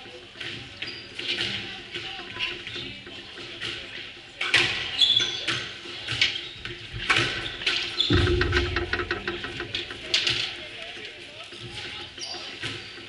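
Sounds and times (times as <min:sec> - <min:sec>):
squash ball striking walls: 0:07.0 - 0:10.5.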